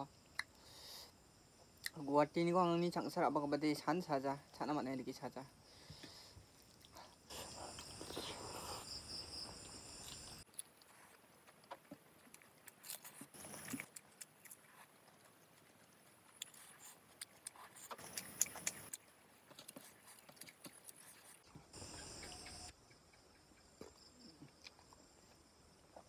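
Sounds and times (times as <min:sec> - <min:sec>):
wet mouth clicks: 0:00.3 - 0:00.6, 0:17.2 - 0:19.0
biting and chewing: 0:06.5 - 0:22.7.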